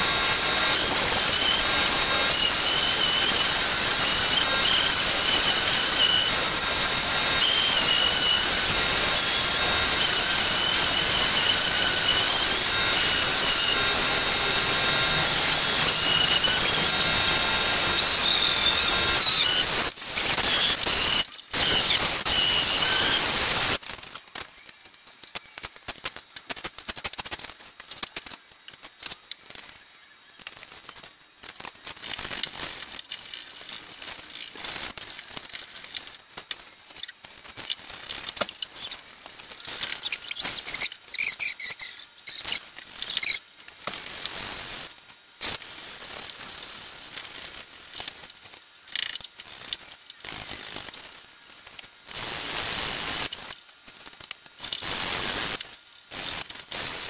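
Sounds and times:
orbital sander running: 0.0 - 19.9.

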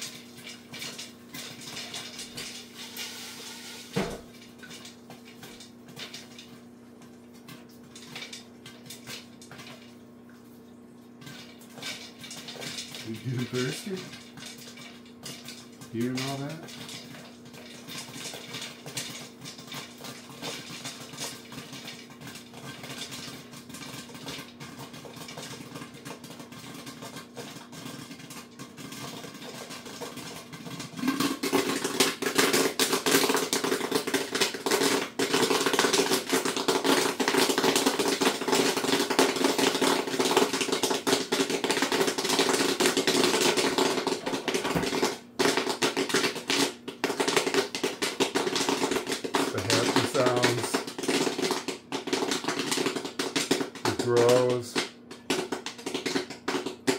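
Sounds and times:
popcorn popping in a pot: 0.0 - 56.9.

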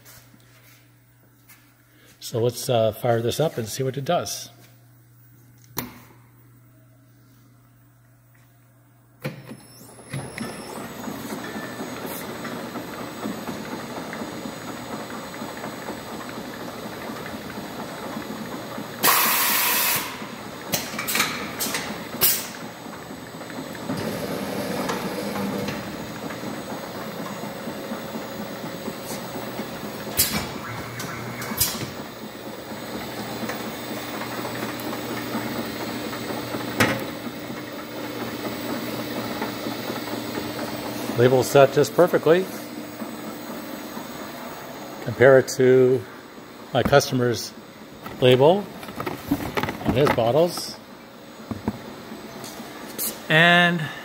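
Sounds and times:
labeling machine whirring: 9.6 - 52.6.

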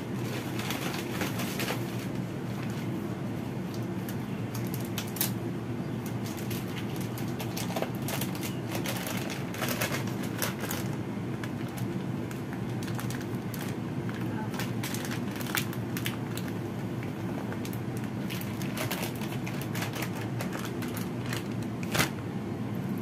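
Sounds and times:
steady low hum: 0.0 - 23.0
plastic packet crinkling: 6.2 - 22.2.

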